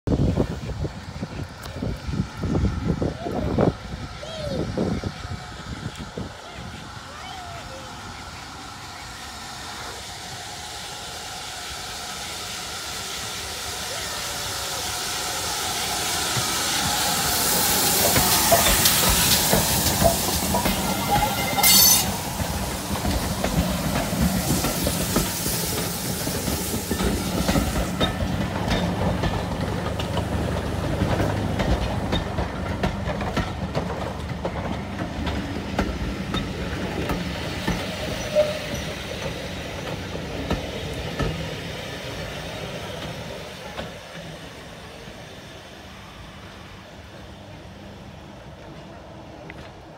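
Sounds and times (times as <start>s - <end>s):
steam locomotive hissing: 0.1s - 49.9s
loud steam burst: 3.7s - 31.3s
train wheels clattering over rail joints: 16.2s - 44.4s.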